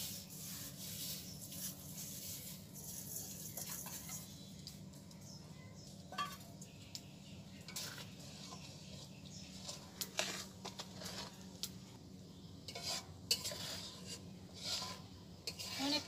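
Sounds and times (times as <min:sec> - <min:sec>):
metal spatula scraping wok: 0:00.0 - 0:04.4, 0:07.6 - 0:11.6, 0:12.6 - 0:16.0
low steady hum: 0:00.0 - 0:16.0.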